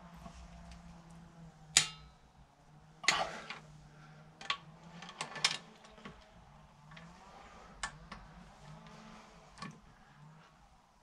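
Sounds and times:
faint low hum: 0.0 - 11.0
wrench clinking on metal bolts: 1.8 - 2.2.

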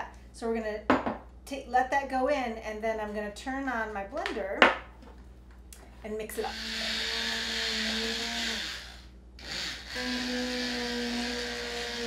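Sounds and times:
stick blender running: 6.4 - 12.0.

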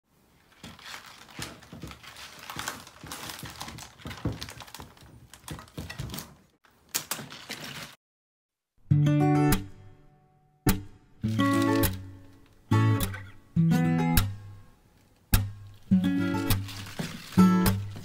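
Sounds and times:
tulip stems and leaves rustling: 0.2 - 8.0, 11.2 - 12.6, 15.0 - 18.0
acoustic guitar music: 8.8 - 14.7, 15.3 - 18.0.

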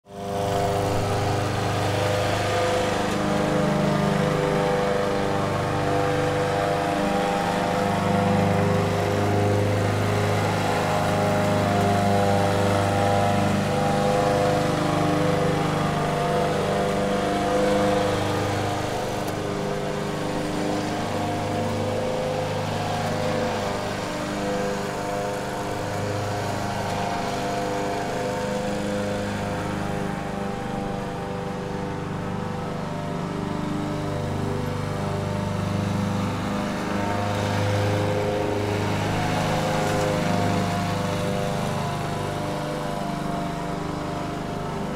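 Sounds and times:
lawn mower running: 0.0 - 44.9.

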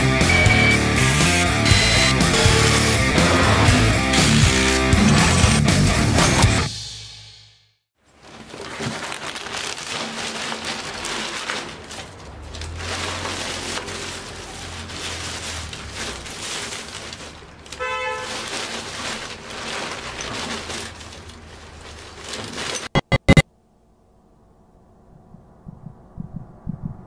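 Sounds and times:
plastic bag rustling: 8.0 - 23.0
low traffic rumble: 10.8 - 22.3
car horn toot: 17.8 - 18.3.

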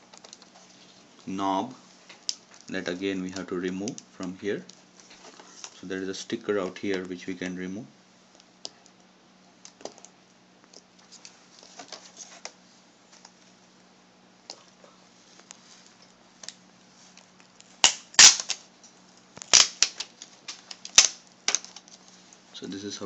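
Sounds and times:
adhesive tape crackling as peeled: 17.2 - 22.2.

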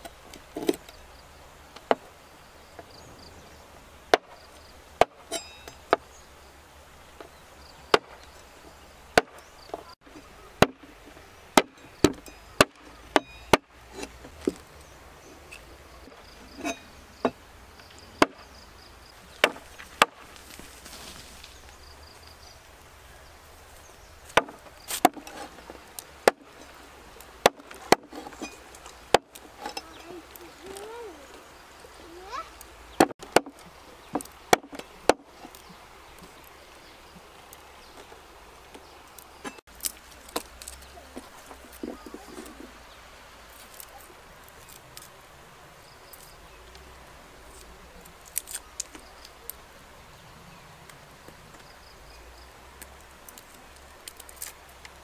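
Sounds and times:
cleaver chopping on wooden board: 10.6 - 10.9, 19.4 - 20.2, 24.3 - 25.2, 33.0 - 35.2.

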